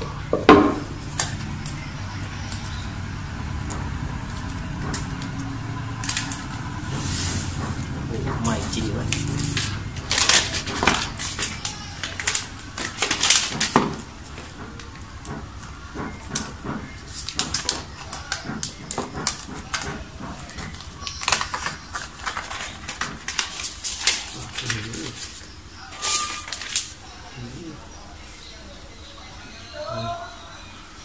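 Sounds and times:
crinkling of soft protective wrap: 0:20.4 - 0:27.4.

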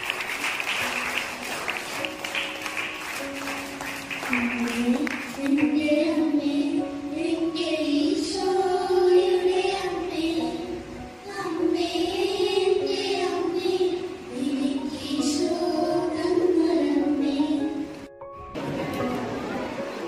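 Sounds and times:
children singing a hymn: 0:03.5 - 0:18.0.

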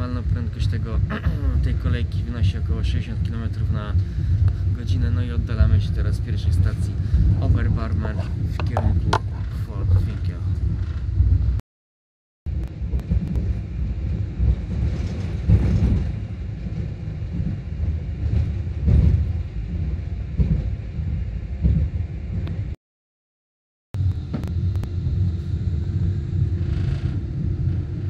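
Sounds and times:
railway car cabin rumble: 0:00.0 - 0:11.6, 0:12.5 - 0:22.8, 0:24.0 - 0:28.0.

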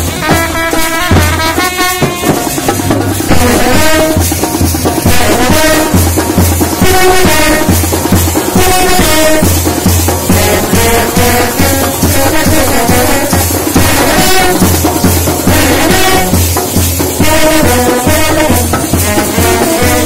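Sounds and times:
bass drum beat: 0:00.0 - 0:20.0
snare drums: 0:00.0 - 0:20.0
street brass band playing: 0:00.0 - 0:20.0
trumpet melody: 0:00.0 - 0:20.0.

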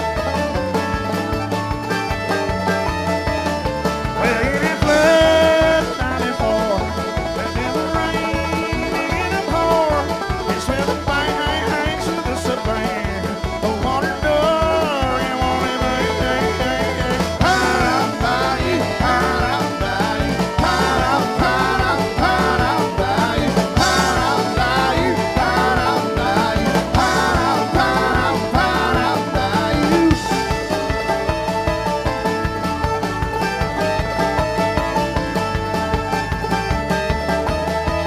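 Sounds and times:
accordion: 0:00.0 - 0:38.0
bouncing bass line: 0:00.0 - 0:38.0
mandolin: 0:00.0 - 0:38.0.

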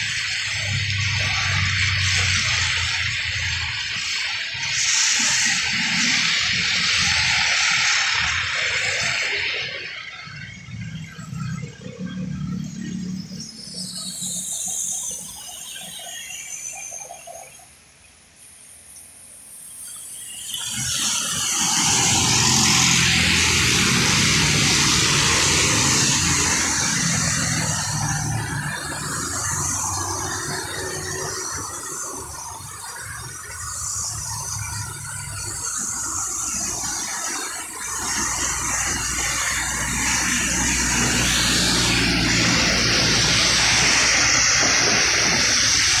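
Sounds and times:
tyres hissing on wet road: 0:00.0 - 0:46.0.

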